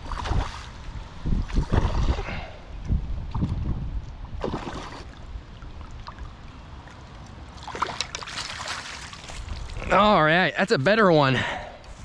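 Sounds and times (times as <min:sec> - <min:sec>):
fish splashing at surface: 0:07.6 - 0:09.4.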